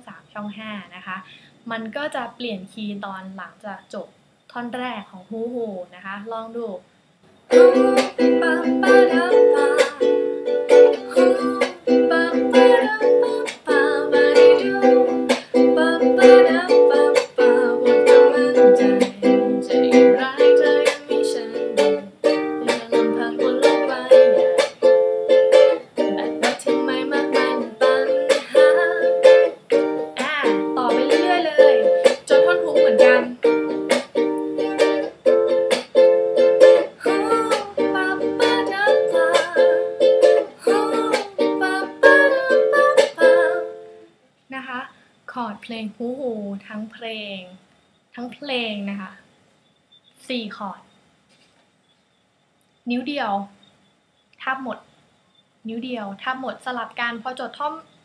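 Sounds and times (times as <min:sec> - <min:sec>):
ukulele strumming: 0:07.5 - 0:44.0.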